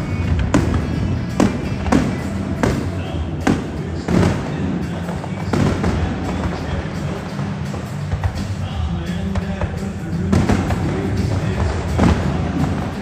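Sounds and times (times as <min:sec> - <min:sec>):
fireworks booming: 0:00.0 - 0:13.0
loud music: 0:00.0 - 0:13.0.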